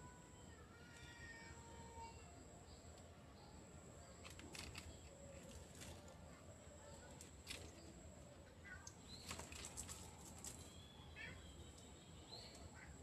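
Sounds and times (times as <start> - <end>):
faint clicks and rustles: 4.1 - 8.0, 8.6 - 10.8.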